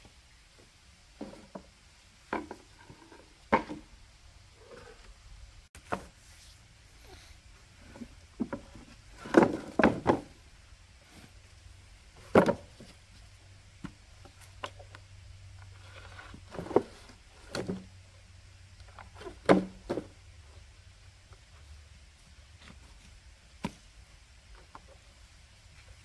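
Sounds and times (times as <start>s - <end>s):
bamboo poles knocking together: 2.3s - 3.9s, 8.4s - 10.4s, 12.2s - 12.9s.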